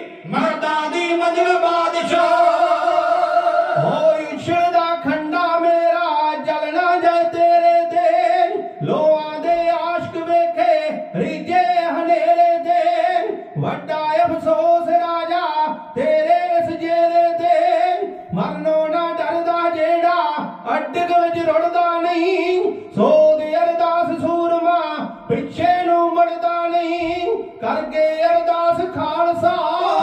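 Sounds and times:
singers singing a ballad: 0.0s - 4.7s, 29.4s - 30.0s.

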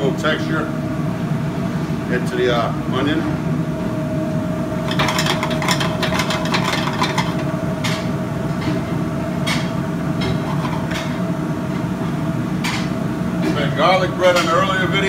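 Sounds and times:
gas range and ventilation roar: 0.0s - 15.0s.

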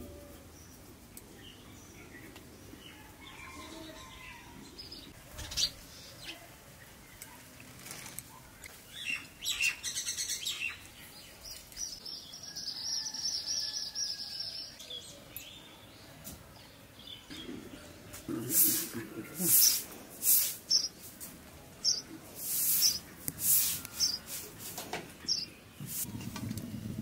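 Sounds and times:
birds chirping: 0.0s - 27.0s
bird trilling song: 8.9s - 15.9s, 20.7s - 21.0s, 21.8s - 24.3s, 25.2s - 25.6s.

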